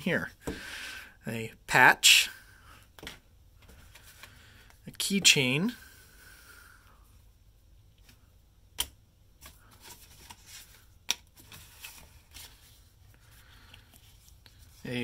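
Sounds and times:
cardboard and paper rustling: 9.4s - 15.0s.

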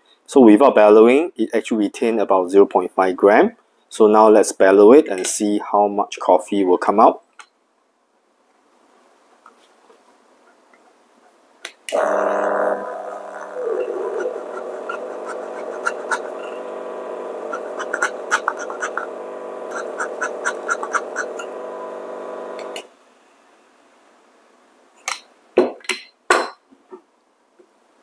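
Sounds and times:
coffee grinder motor hum: 11.9s - 22.9s.

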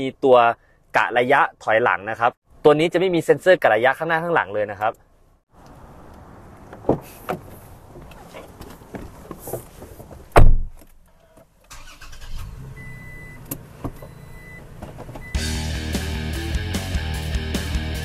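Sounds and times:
car door shutting: 6.7s - 10.9s
car engine starting and idling: 11.7s - 17.2s.

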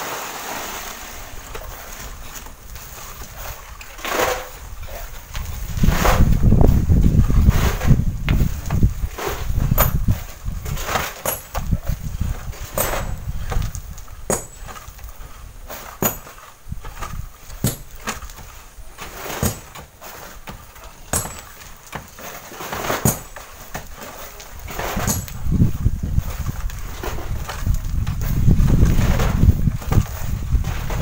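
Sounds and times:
wind buffeting microphone: 1.2s - 15.7s, 24.5s - 31.0s
bamboo poles knocking on sand: 1.6s - 31.0s.

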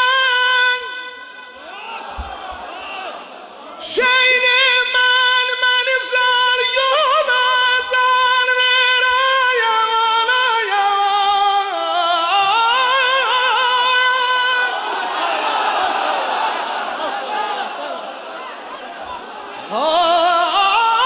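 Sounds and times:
man singing wordless lament: 3.8s - 14.8s.

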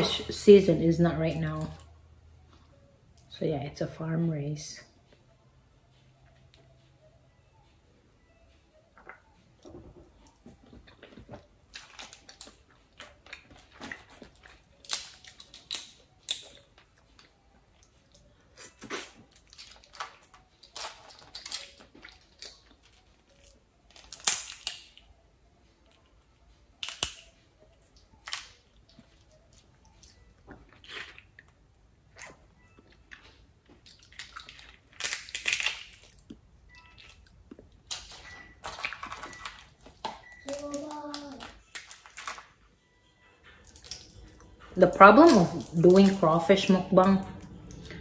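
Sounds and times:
shells cracking and snapping: 11.7s - 17.3s, 19.3s - 25.1s, 26.8s - 27.4s, 28.2s - 28.6s, 33.8s - 36.4s, 37.8s - 42.5s, 43.6s - 44.1s
wet eating noises: 28.0s - 42.4s, 43.5s - 48.0s.

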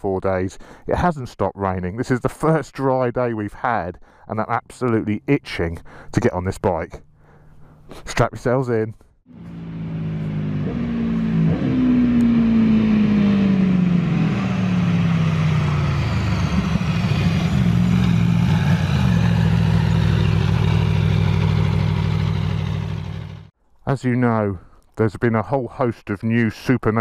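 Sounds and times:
motorcycle engine running: 9.3s - 23.5s.

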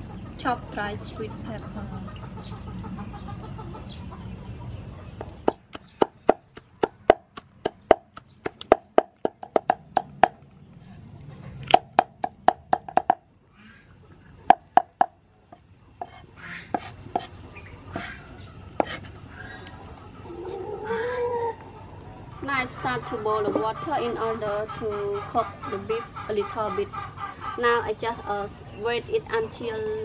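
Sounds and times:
cleaver chopping on wooden block: 5.4s - 10.4s.

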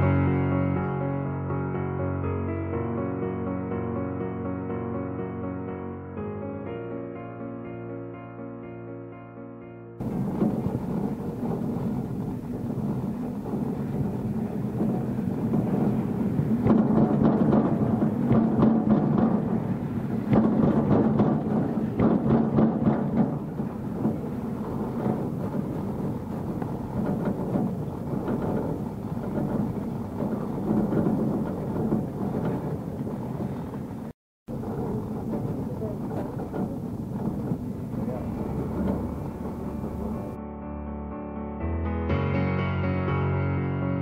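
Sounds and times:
small irregular clatters: 10.0s - 40.4s
cable lift mechanical rumble: 10.0s - 40.5s.

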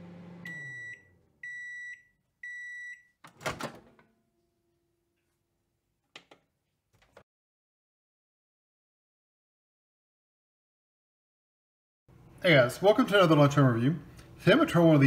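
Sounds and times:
microwave oven humming: 0.0s - 1.6s
microwave beeps: 0.1s - 3.2s.

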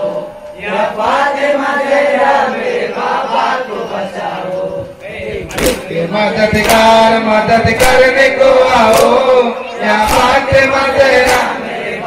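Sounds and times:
male crowd chanting: 0.0s - 12.0s
hands beating on chests: 5.5s - 5.9s, 6.6s - 7.0s.

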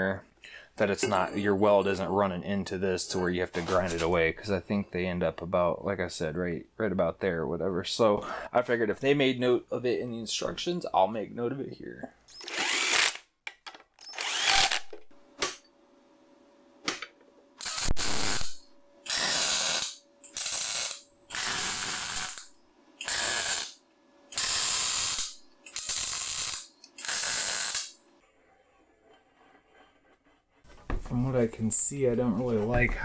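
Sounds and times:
welder bursts: 12.3s - 13.2s, 14.1s - 14.9s, 17.6s - 28.0s
cordless drill running: 12.4s - 13.2s, 14.1s - 15.0s, 19.1s - 22.4s, 24.4s - 27.8s.

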